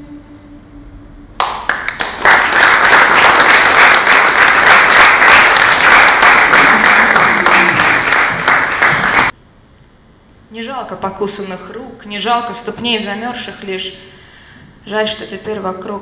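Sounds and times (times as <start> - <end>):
audience applauding: 1.4 - 9.3.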